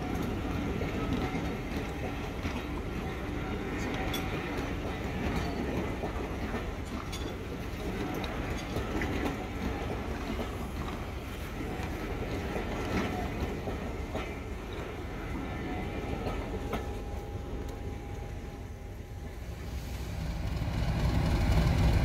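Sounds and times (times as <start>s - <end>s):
wheels clicking over rail joints: 0.0s - 15.1s
train rumbling: 0.0s - 22.0s.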